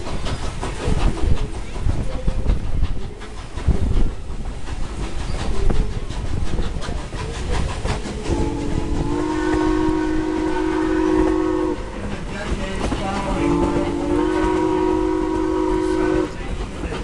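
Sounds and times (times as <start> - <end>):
train coach rolling on rails: 0.0 - 17.0
steam whistle blast: 8.3 - 11.9, 13.4 - 16.4.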